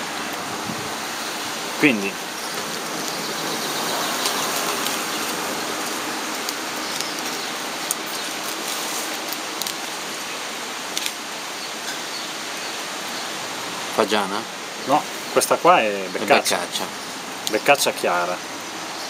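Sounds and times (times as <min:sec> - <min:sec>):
rushing background noise: 0:00.0 - 0:19.0
plastic bag crackling: 0:02.6 - 0:10.1.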